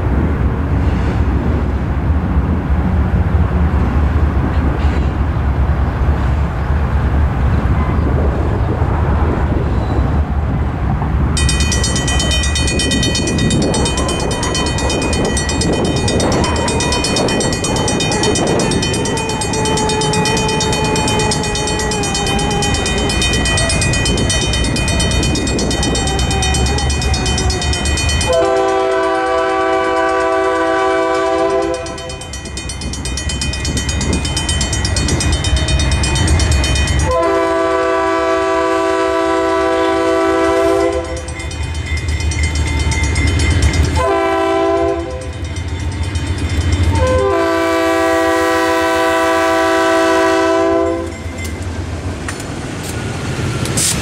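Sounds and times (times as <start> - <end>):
low train rumble: 0.0 - 54.0
crossing bell ringing: 11.3 - 52.4
locomotive horn blasts: 16.4 - 17.3, 18.0 - 23.3, 25.8 - 32.4, 37.0 - 41.3, 44.0 - 45.4, 46.9 - 51.2.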